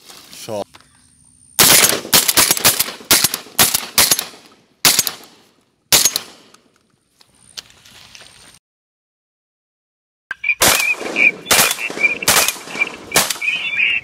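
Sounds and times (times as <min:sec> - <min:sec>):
shotgun blasts: 0:01.6 - 0:06.5, 0:10.6 - 0:13.6.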